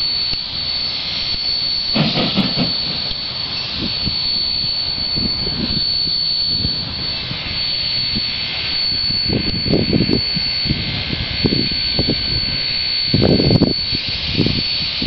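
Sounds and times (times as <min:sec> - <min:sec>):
faint locomotive exhaust beats: 0:00.0 - 0:15.0
hiss of escaping steam: 0:00.6 - 0:05.0.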